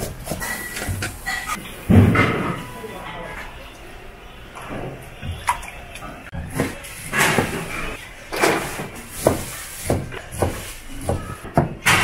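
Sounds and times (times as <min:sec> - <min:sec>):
knife chopping on plastic board: 0:09.2 - 0:12.0.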